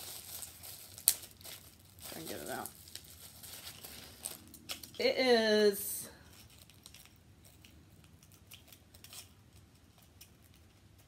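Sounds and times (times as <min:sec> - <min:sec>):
small clicks and handling noise: 0:06.3 - 0:11.0.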